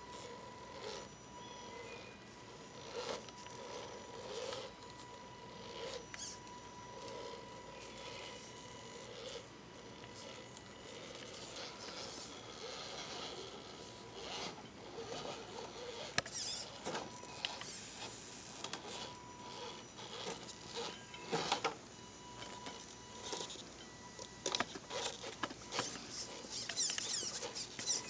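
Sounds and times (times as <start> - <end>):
small electric motor whining: 0.0 - 28.0
tyres clicking and scraping on stone: 24.4 - 28.0.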